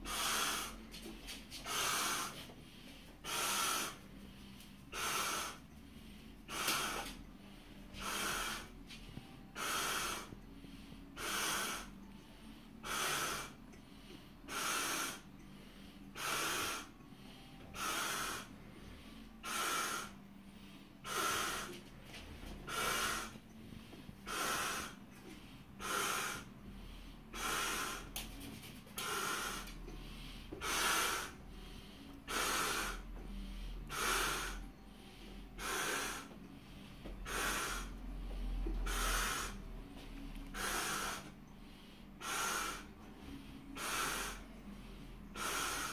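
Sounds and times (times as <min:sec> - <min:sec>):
man blowing up a balloon: 0:00.0 - 0:00.9, 0:01.6 - 0:02.5, 0:03.2 - 0:04.0, 0:04.9 - 0:05.6, 0:06.5 - 0:07.2, 0:08.0 - 0:08.8, 0:09.5 - 0:10.4, 0:11.2 - 0:12.1, 0:12.8 - 0:13.6, 0:14.5 - 0:15.3, 0:16.1 - 0:17.0, 0:17.8 - 0:18.5, 0:19.4 - 0:20.2, 0:21.0 - 0:21.8, 0:22.7 - 0:23.4, 0:24.2 - 0:25.0, 0:25.8 - 0:26.5, 0:27.3 - 0:29.9, 0:30.6 - 0:31.4, 0:32.3 - 0:33.1, 0:33.9 - 0:34.7, 0:35.6 - 0:36.4, 0:37.2 - 0:38.0, 0:38.6 - 0:39.7, 0:40.5 - 0:41.3, 0:42.2 - 0:43.0, 0:43.8 - 0:44.5, 0:45.3 - 0:45.9
sharp heavy breaths: 0:00.0 - 0:45.9.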